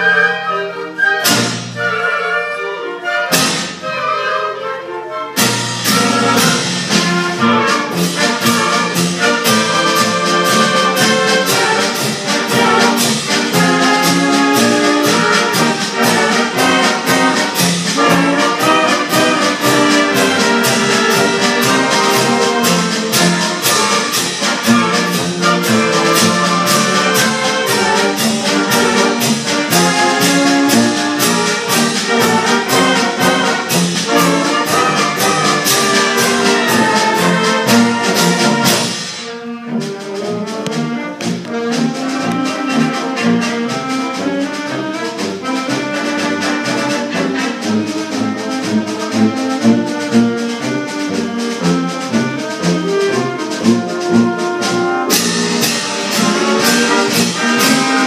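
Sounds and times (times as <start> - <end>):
concert band playing: 0.0 - 58.0.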